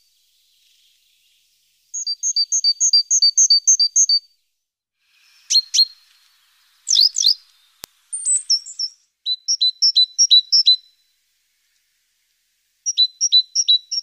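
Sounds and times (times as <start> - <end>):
birds chirping and calling: 5.2 - 10.9
faint click: 7.3 - 8.3, 11.7 - 12.4.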